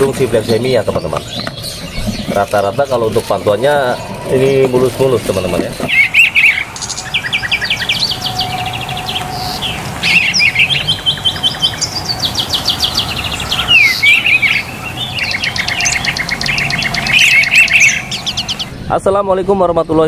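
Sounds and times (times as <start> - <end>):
songbirds trilling: 0.0 - 20.0
falling bird whistle: 5.9 - 18.7.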